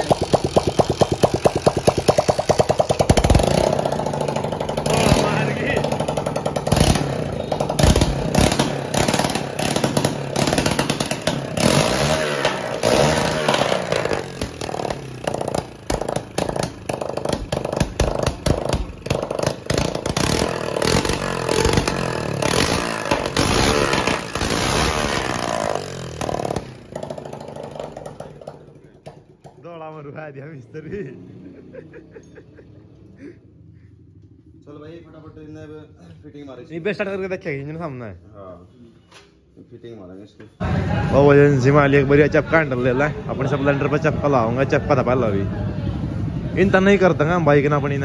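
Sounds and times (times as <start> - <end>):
motorcycle engine revving: 0.0 - 29.4.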